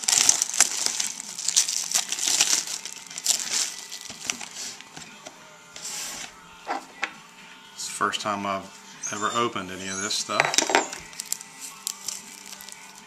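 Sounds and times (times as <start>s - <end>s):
plastic wrap crinkling and tearing: 0.0s - 5.2s, 10.4s - 13.0s.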